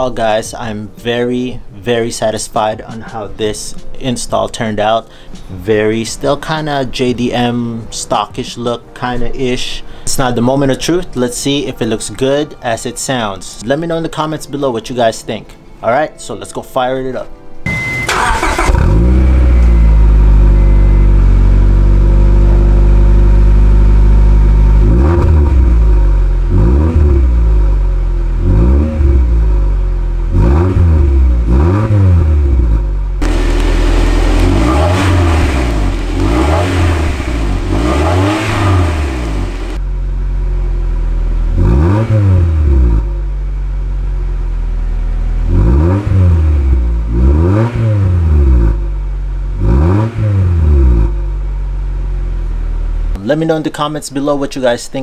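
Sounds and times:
engine revving in blips: 0:17.7 - 0:23.0, 0:24.7 - 0:39.8, 0:41.5 - 0:43.2, 0:45.4 - 0:51.4
car engine idling: 0:17.7 - 0:47.5, 0:48.2 - 0:49.8, 0:50.5 - 0:53.2.

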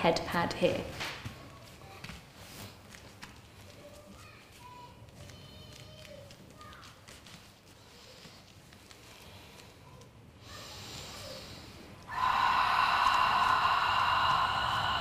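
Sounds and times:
woman breathing in: 0:10.5 - 0:15.0
woman exhaling through mouth: 0:12.1 - 0:15.0.

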